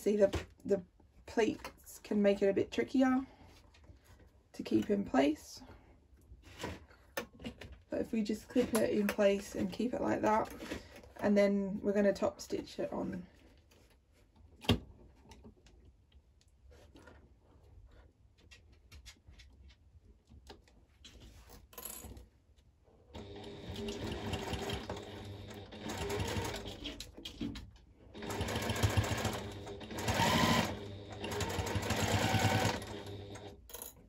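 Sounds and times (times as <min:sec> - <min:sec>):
sewing machine stitching: 0:23.2 - 0:27.2, 0:28.1 - 0:33.6.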